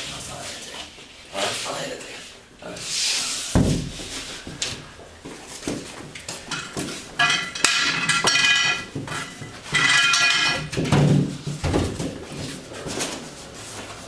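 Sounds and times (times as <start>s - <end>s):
drywall sheet knocking and scraping: 3.5s - 4.4s, 10.7s - 14.0s.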